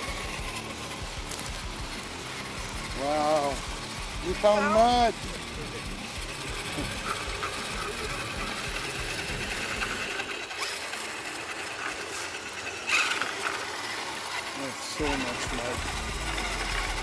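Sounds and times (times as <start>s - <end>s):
rc truck motors whining: 0.0s - 17.0s
clatter: 5.2s - 17.0s.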